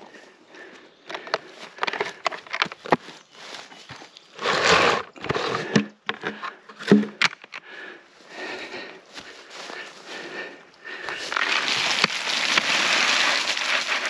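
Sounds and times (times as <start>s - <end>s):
handling knocks clicks and scrapes: 1.0s - 7.7s.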